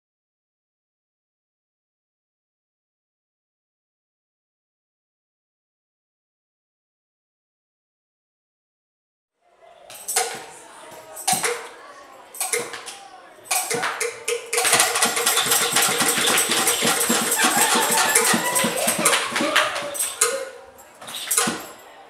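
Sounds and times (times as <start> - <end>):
hand drum beating: 13.6 - 20.3.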